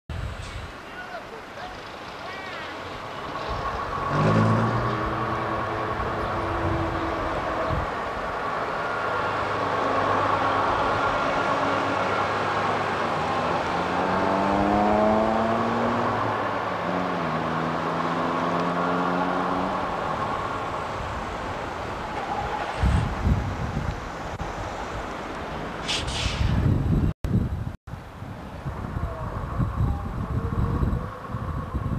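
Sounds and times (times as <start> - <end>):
bus diesel engine accelerating: 1.7 - 27.0.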